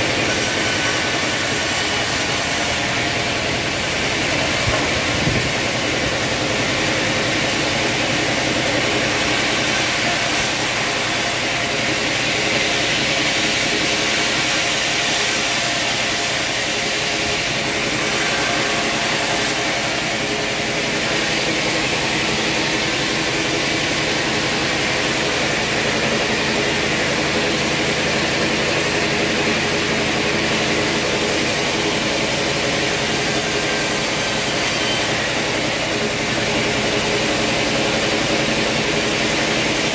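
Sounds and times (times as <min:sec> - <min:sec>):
band saw mill humming: 0:00.0 - 0:39.9
machine hiss: 0:00.0 - 0:39.9.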